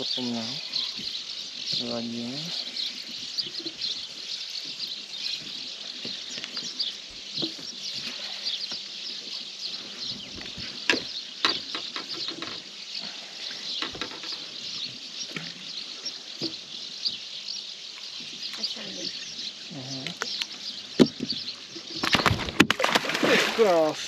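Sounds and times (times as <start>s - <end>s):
small birds chirping: 0.0s - 24.0s
water splashing: 21.8s - 24.0s.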